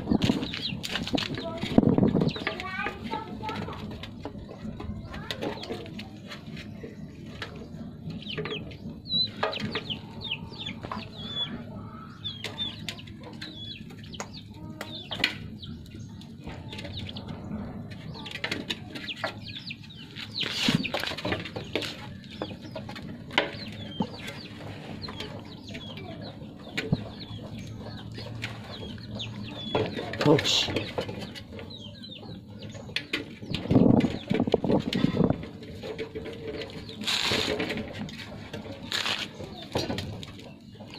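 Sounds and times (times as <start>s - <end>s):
chicken clucking: 0.0s - 40.9s.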